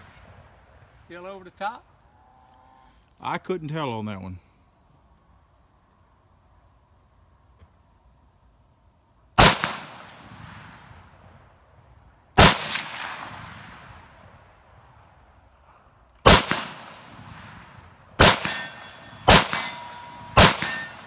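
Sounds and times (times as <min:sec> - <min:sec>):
rifle shots echoing: 0:09.4 - 0:11.2, 0:12.4 - 0:14.3, 0:16.2 - 0:21.0.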